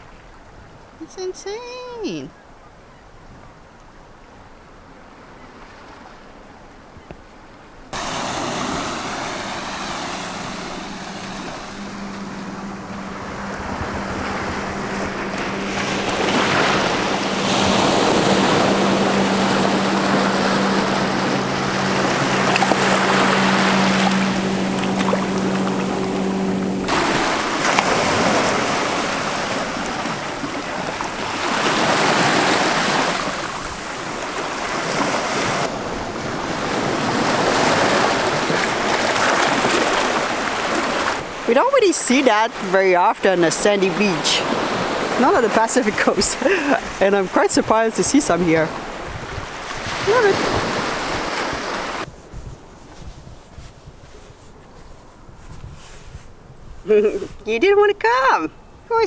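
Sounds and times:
small waves washing on shore: 0:07.4 - 0:58.3
steady low hum: 0:07.9 - 0:34.6.

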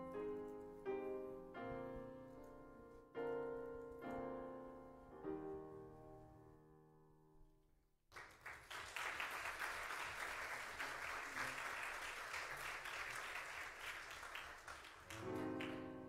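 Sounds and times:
piano music: 0:00.0 - 0:07.3, 0:15.1 - 0:16.0
crowd applauding: 0:08.1 - 0:16.0.

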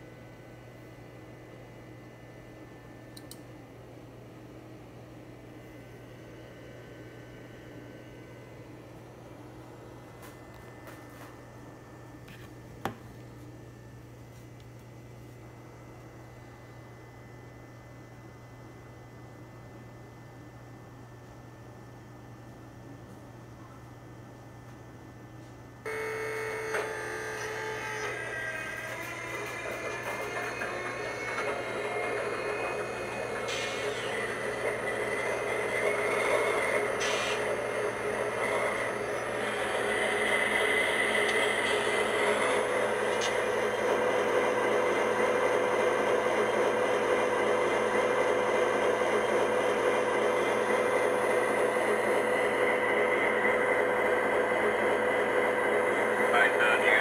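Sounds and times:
click: 0:03.1 - 0:03.5
steady electronic tone: 0:25.9 - 0:35.8
recorded diesel engine startup: 0:26.8 - 0:34.6.

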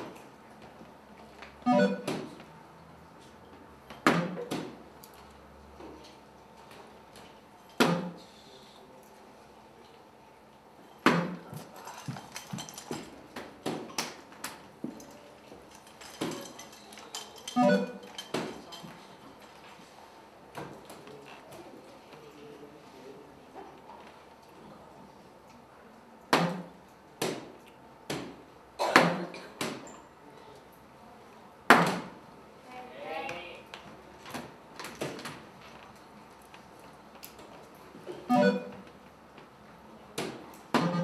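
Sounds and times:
darts striking dartboard: 0:04.0 - 0:04.8, 0:07.8 - 0:08.2, 0:11.0 - 0:11.4, 0:26.3 - 0:27.5, 0:31.7 - 0:32.2, 0:40.2 - 0:41.0
dart striking electronic dartboard: 0:04.1 - 0:04.6, 0:07.8 - 0:08.2, 0:26.3 - 0:26.7.

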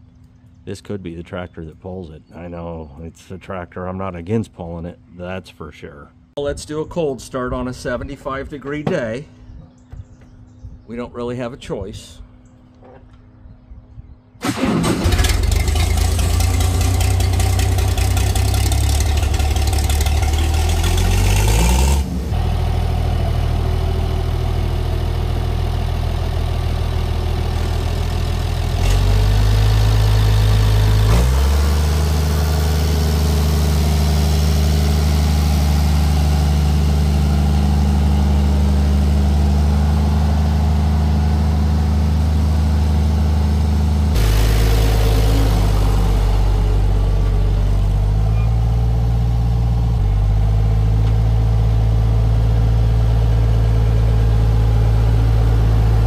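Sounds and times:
tractor engine running: 0:14.4 - 0:56.0.

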